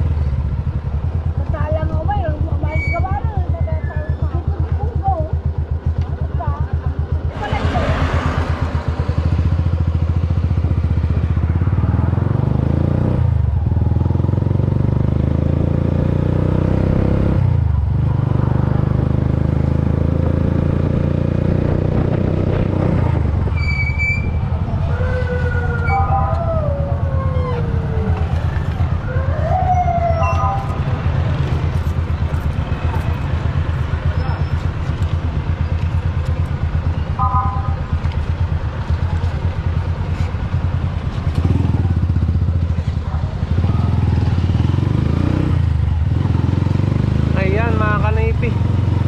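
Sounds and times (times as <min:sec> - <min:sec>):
motorcycle engine running: 0:00.0 - 0:49.0
traffic: 0:00.0 - 0:49.0
wavering sliding tone: 0:25.1 - 0:28.3, 0:29.1 - 0:31.3.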